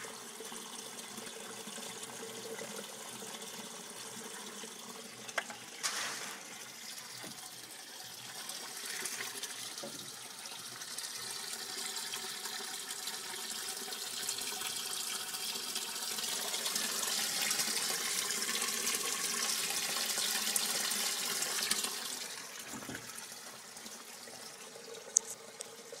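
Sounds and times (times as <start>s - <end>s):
water splashing into tank: 5.3s - 7.6s.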